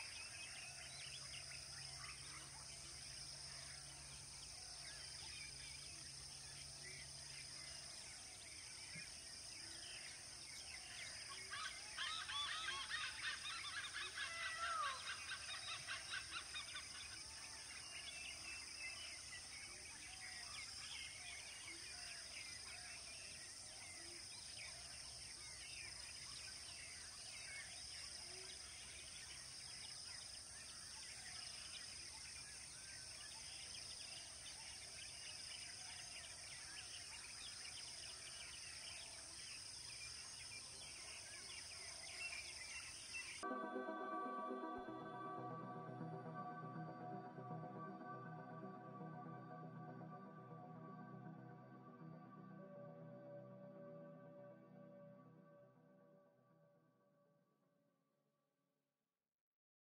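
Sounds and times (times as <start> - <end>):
birds chirping and calling: 11.4 - 17.0.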